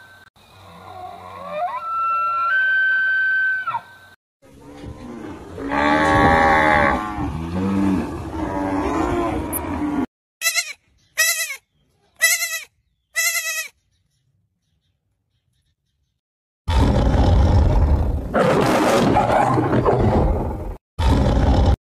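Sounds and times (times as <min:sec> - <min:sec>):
cow mooing: 0:04.6 - 0:10.1.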